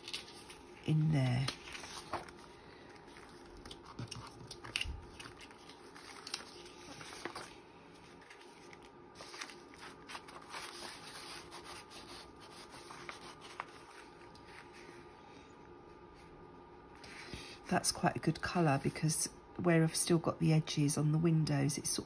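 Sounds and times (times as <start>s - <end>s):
paper rustling: 0.0s - 15.0s.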